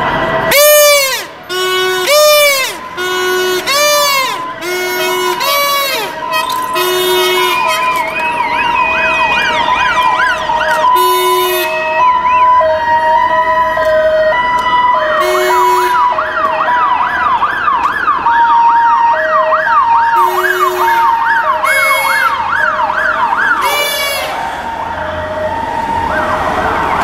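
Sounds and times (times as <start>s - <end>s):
stepped siren notes: 0.0s - 27.0s
wailing siren: 0.0s - 27.0s
short shrill siren blasts: 0.4s - 13.0s, 15.0s - 16.4s, 20.0s - 27.0s
yelping siren: 0.4s - 27.0s.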